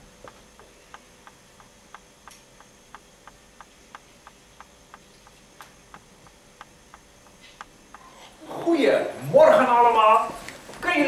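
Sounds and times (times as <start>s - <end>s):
even ticking: 0.0s - 8.1s
faint steady hum: 0.0s - 11.0s.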